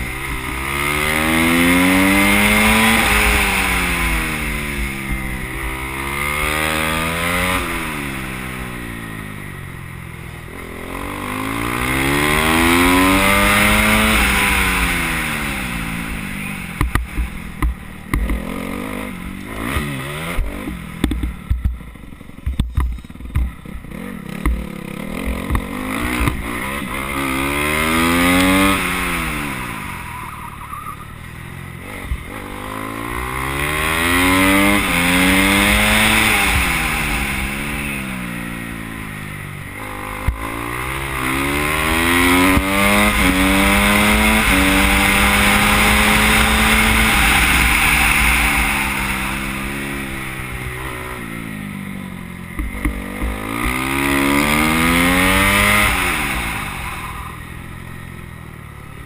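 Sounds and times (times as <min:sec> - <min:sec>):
motorcycle engine revving: 0:00.0 - 0:59.0
knocks and clatter of bike: 0:16.7 - 0:27.2, 0:52.4 - 0:56.7.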